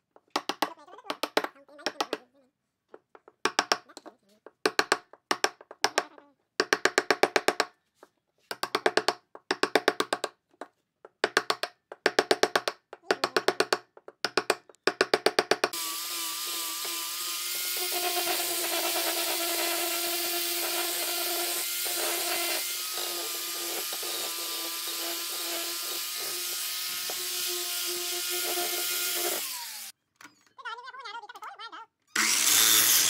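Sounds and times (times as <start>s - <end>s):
chisel knocking on wood: 4.5s - 6.0s, 6.6s - 7.7s, 8.5s - 15.8s
angle grinder sanding wood: 15.8s - 29.9s, 32.2s - 33.0s.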